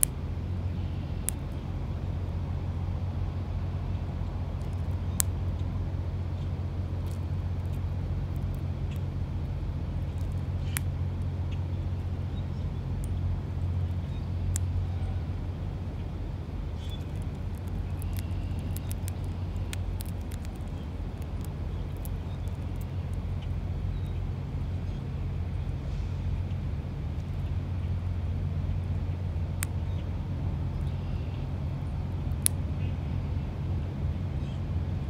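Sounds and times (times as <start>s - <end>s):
low background rumble: 0.0s - 35.0s
bird pecking and cracking seed: 1.2s - 1.6s, 4.5s - 5.6s, 7.0s - 9.1s, 10.0s - 11.3s, 13.8s - 14.7s, 16.7s - 23.6s.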